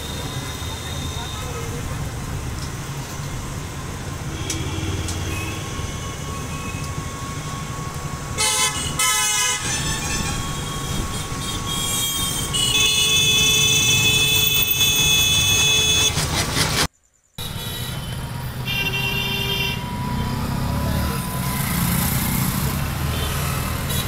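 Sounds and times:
busy street traffic: 0.0s - 24.0s
vehicle horn honking: 4.3s - 7.0s, 8.4s - 16.2s, 17.4s - 20.4s.

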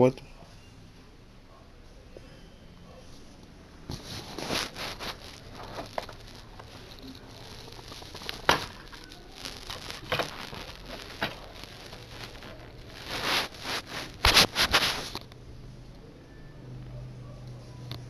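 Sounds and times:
handling rustling: 3.8s - 15.3s.

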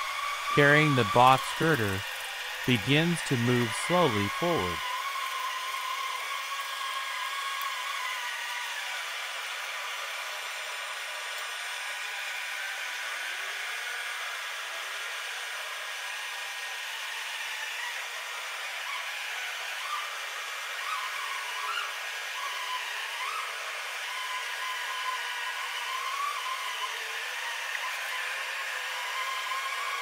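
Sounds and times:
steady machine hiss: 0.0s - 4.8s.

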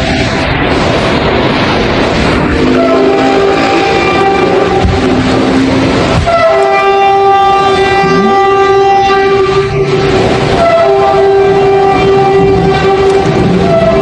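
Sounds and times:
trumpet-like horn chord: 2.6s - 5.2s, 6.2s - 14.0s.

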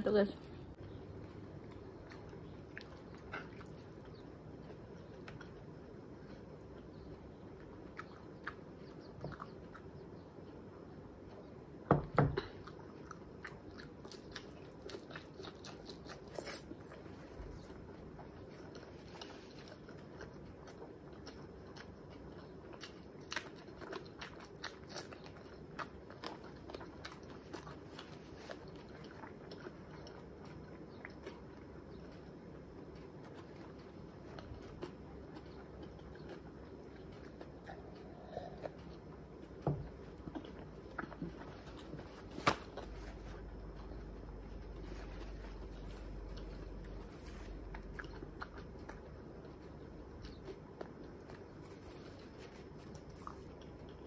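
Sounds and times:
person chewing food: 0.7s - 11.6s, 12.3s - 54.0s.

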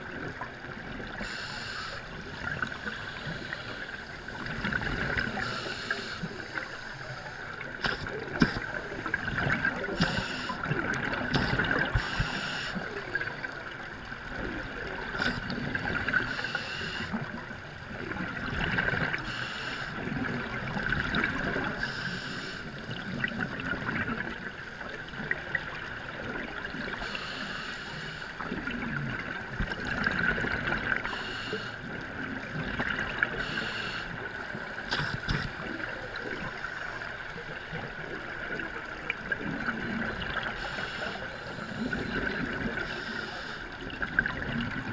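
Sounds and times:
diver breathing through regulator: 1.2s - 4.4s, 5.3s - 7.2s, 7.8s - 8.8s, 9.8s - 10.7s, 11.3s - 12.9s, 19.2s - 20.0s, 21.8s - 22.7s, 27.0s - 28.4s, 31.1s - 31.8s, 33.4s - 35.6s, 40.5s - 43.7s
gurgling exhaled bubbles: 7.6s - 12.4s, 34.2s - 36.8s, 37.7s - 44.9s.

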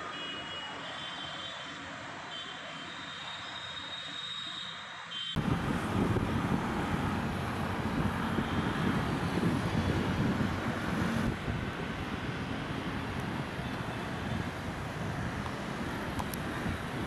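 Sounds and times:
wind on microphone: 5.4s - 17.0s.

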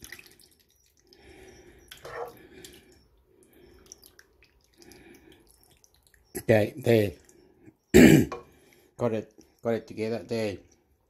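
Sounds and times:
liquid sloshing and dripping: 0.0s - 7.8s.

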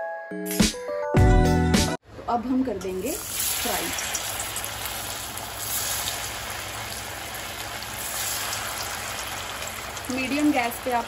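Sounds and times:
hot oil sizzling: 2.9s - 11.0s.

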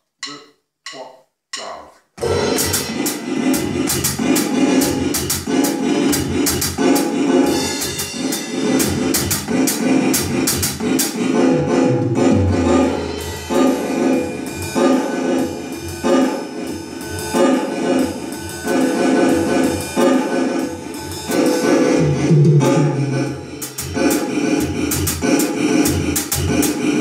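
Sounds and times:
metronome clicking: 0.0s - 2.0s
electronic drum groove: 0.0s - 27.0s.

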